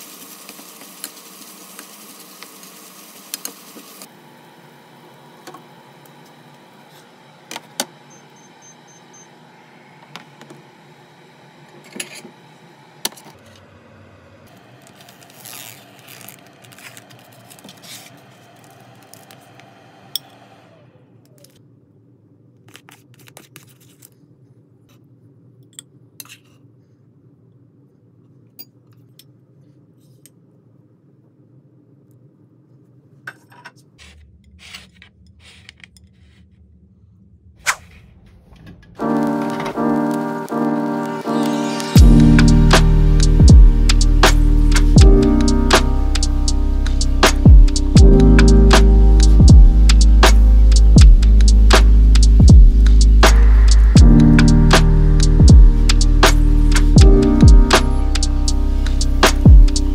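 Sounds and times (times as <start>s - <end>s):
stir-fry sizzling in a pan: 0.0s - 4.1s
plastic film crinkling: 14.6s - 19.4s
steady hum: 36.6s - 59.9s.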